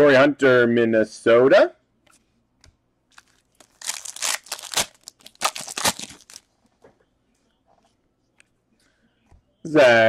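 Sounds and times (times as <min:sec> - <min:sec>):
foil wrapper tearing and crinkling: 0:03.1 - 0:06.5.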